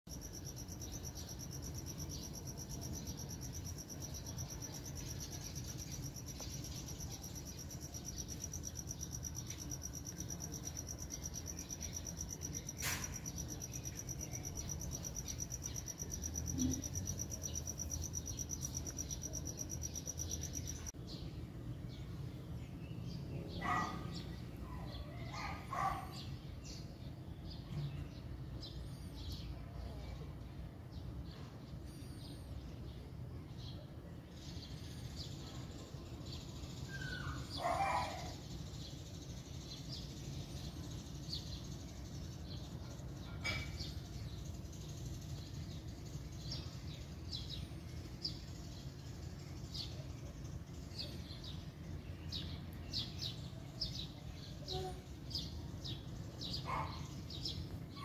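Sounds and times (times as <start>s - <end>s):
insect trilling: 0.2s - 20.9s
bird calls: 56.5s - 58.0s.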